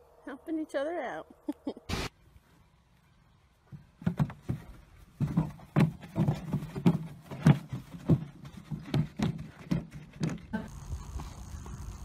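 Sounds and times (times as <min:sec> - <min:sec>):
hooves thudding on dirt: 0:03.6 - 0:11.8.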